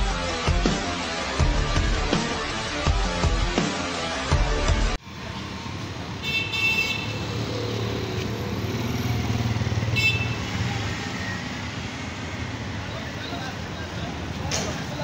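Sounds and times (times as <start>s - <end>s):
electronic music: 0.0s - 5.0s
vehicle horn toots: 6.2s - 7.2s, 9.9s - 10.5s.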